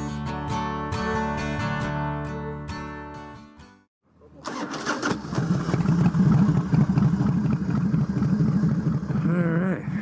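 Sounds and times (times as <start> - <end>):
motorcycle engine idling unevenly: 5.6 - 10.0.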